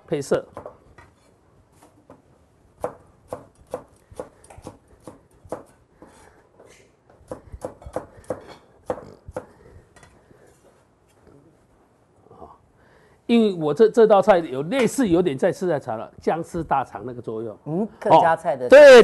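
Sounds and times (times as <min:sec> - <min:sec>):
knife chopping on wooden board: 0:02.8 - 0:06.2, 0:07.3 - 0:09.5.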